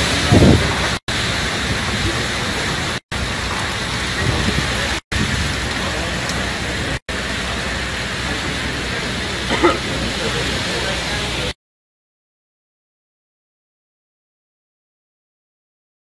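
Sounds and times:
wind and driving rain rushing: 0:00.0 - 0:11.6.

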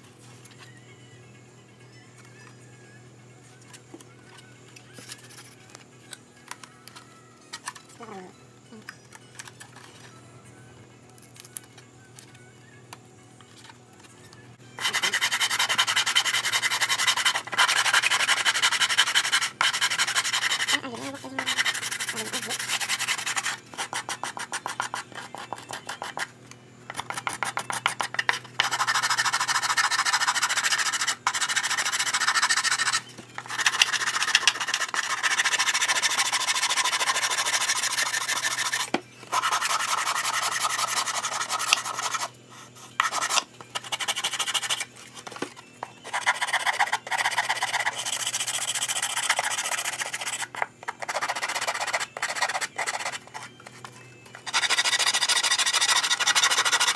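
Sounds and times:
sanding block scratching wood: 0:14.8 - 0:26.3, 0:26.9 - 0:44.9, 0:46.0 - 0:53.5, 0:54.5 - 0:56.9.

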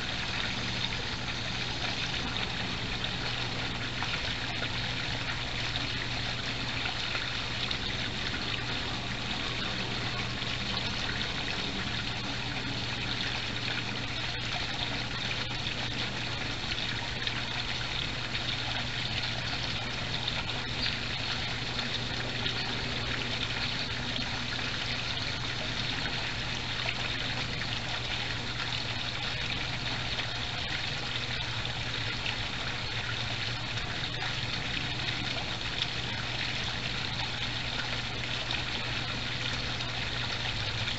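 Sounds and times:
water trickling into pond: 0:00.0 - 0:40.9.

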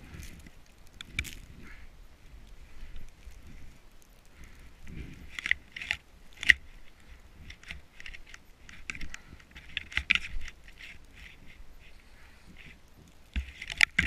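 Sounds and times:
snow and clothing scraping camera: 0:00.0 - 0:14.0.

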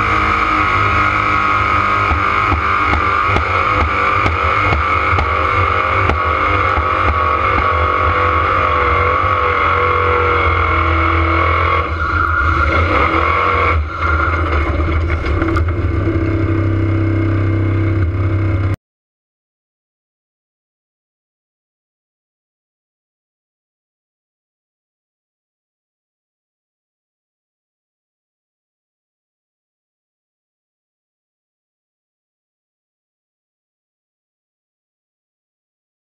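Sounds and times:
buggy engine running hard: 0:00.0 - 0:18.8.

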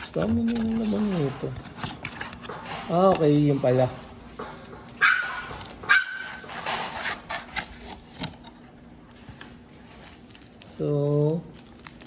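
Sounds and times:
foil packs rustling: 0:00.0 - 0:04.0, 0:09.1 - 0:12.0.

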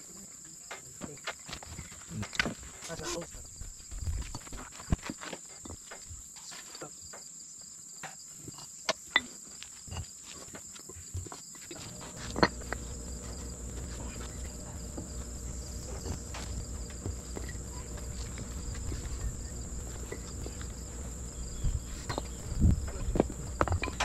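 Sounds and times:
insects chirring: 0:00.0 - 0:24.0
low steady rumble: 0:11.8 - 0:24.0
sharp clicks and knocks: 0:11.9 - 0:24.0.

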